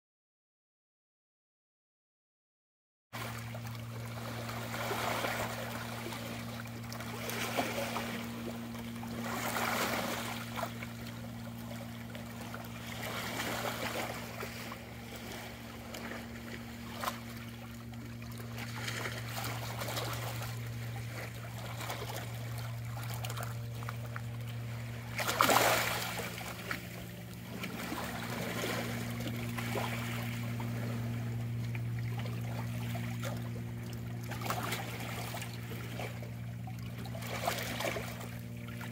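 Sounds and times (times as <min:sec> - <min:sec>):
steady low hum: 0:03.2 - 0:38.9
waves lapping against rocks: 0:03.2 - 0:38.9.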